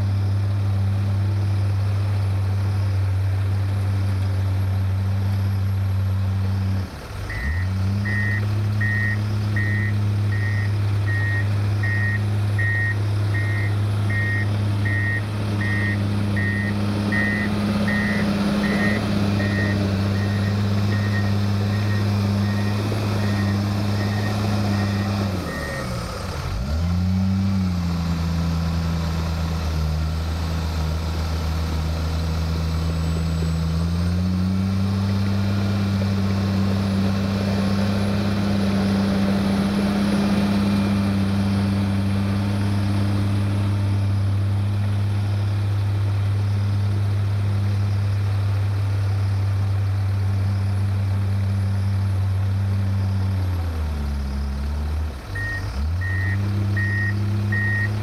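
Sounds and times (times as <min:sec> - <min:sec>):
diesel engine running: 0:00.0 - 0:58.0
reverse alarm beeping: 0:07.3 - 0:25.9, 0:55.4 - 0:58.0.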